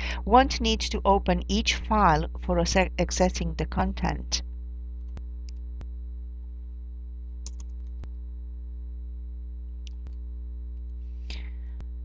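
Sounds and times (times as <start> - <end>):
low electrical hum: 0.0 - 12.0
mouse clicks: 7.5 - 7.7.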